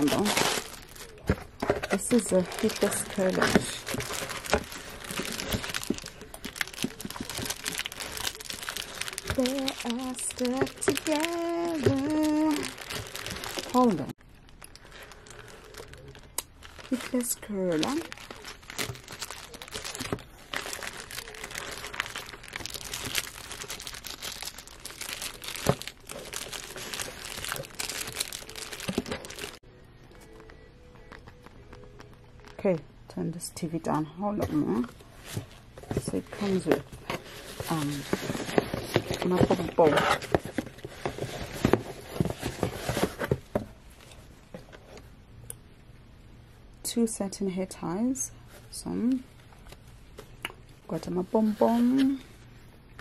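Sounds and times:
packaging rustling in cardboard box: 0.0s - 29.6s, 34.7s - 45.0s
plastic bag crinkling: 0.0s - 29.6s, 35.0s - 44.2s.

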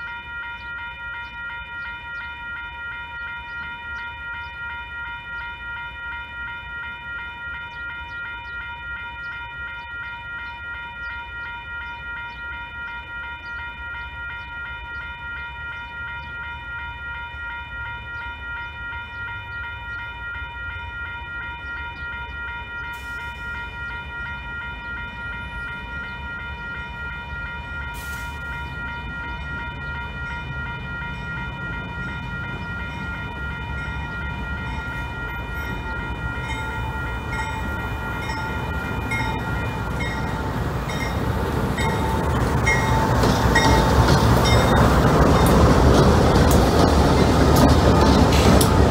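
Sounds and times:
railroad crossing bell ringing: 0.0s - 48.9s
freight train rumble: 16.0s - 48.9s.

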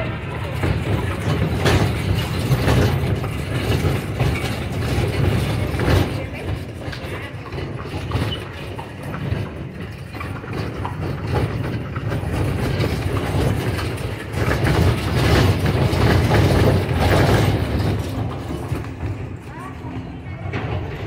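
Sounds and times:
carriage wheels rattling: 0.0s - 21.0s.

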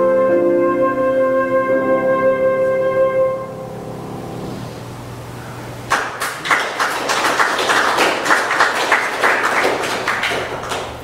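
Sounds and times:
group applauding: 5.9s - 11.0s.

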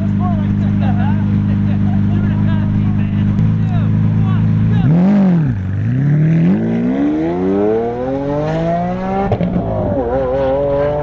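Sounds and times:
car engine accelerating: 0.0s - 11.0s.

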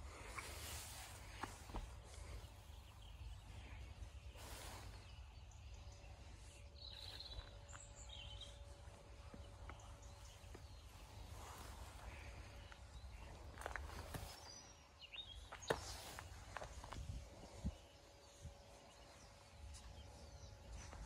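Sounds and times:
faint steady hum: 0.0s - 21.0s
bird chirps: 1.3s - 16.2s.

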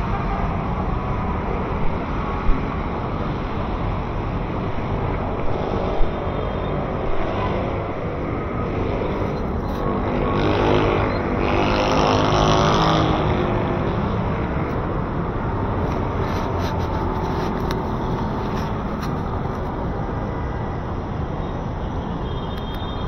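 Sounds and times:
vehicle engines running: 0.0s - 21.2s
vehicle passing close: 6.9s - 19.4s.

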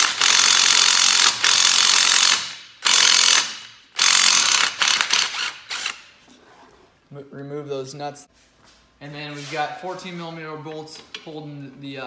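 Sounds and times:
impact wrench hammering: 0.0s - 6.0s.

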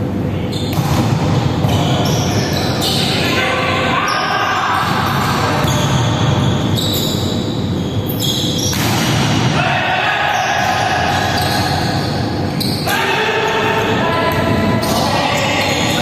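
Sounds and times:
hubbub of the game: 0.0s - 16.0s
volleyball hits echoing: 0.7s - 2.0s, 8.6s - 11.8s.

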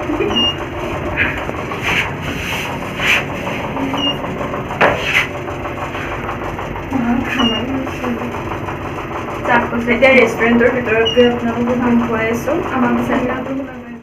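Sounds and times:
lift mechanical hum: 0.0s - 14.0s.

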